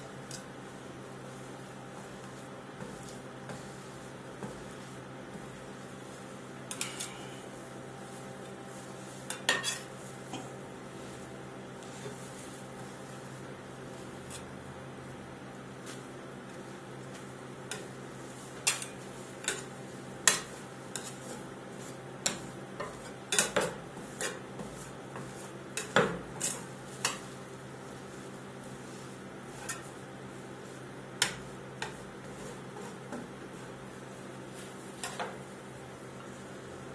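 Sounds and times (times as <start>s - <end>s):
metal scraper tapping and scraping: 6.7s - 7.4s, 9.3s - 10.5s, 18.6s - 21.3s, 22.2s - 27.3s, 31.2s - 33.3s.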